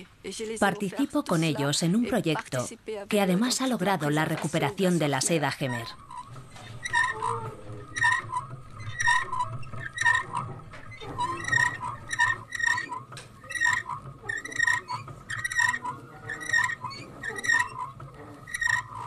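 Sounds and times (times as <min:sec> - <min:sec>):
wooden hand loom clacking: 0:04.1 - 0:19.0.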